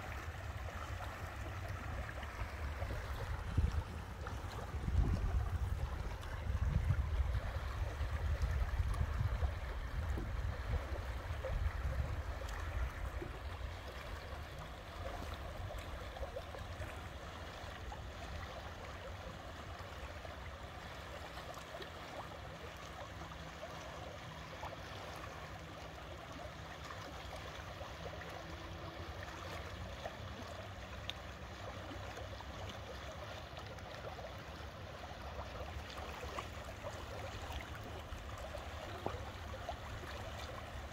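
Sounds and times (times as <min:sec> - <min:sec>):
water rushing and gurgling: 0:00.0 - 0:40.9
wind rumbling on microphone: 0:00.7 - 0:16.9.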